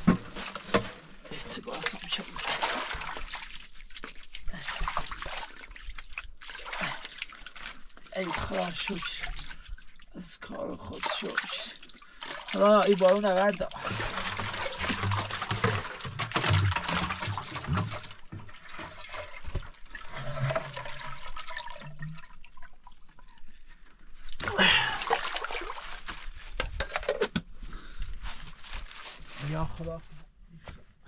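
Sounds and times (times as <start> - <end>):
water gurgling and splashing: 0.0 - 23.3, 24.4 - 26.1.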